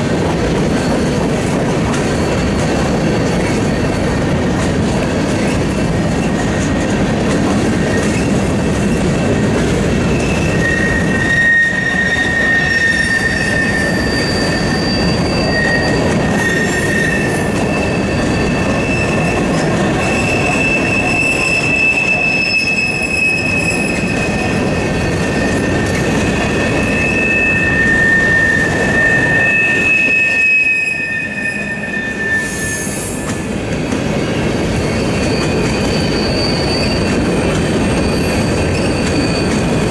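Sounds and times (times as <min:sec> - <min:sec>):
train wheels rumbling on rail: 0:00.0 - 0:39.9
high wheel squeals: 0:00.5 - 0:39.9.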